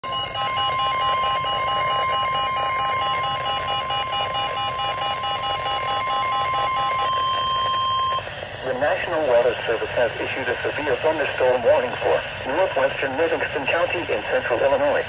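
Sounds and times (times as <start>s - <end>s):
rapidly pulsing beeps: 0.0s - 8.2s
steady warning tone: 0.0s - 8.4s.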